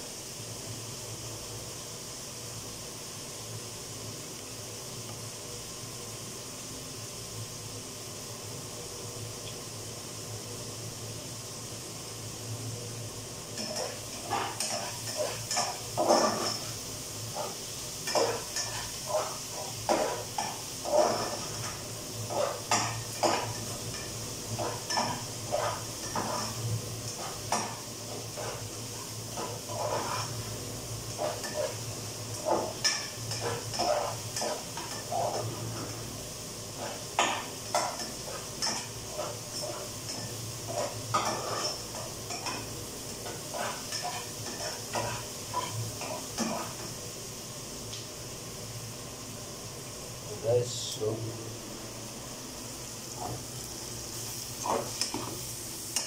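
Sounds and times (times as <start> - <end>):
steady hiss: 0.0 - 56.0
spoon scraping a cooking pot: 24.6 - 26.6, 29.3 - 30.5, 32.4 - 35.5, 36.8 - 46.8.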